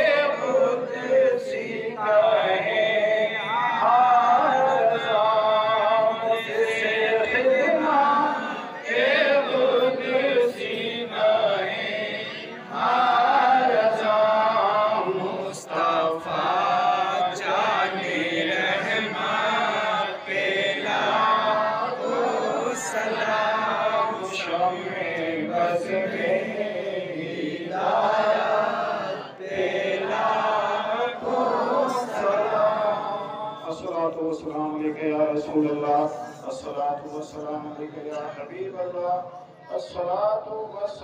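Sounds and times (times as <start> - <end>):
man chanting over pa: 0.0 - 20.4, 31.5 - 41.0.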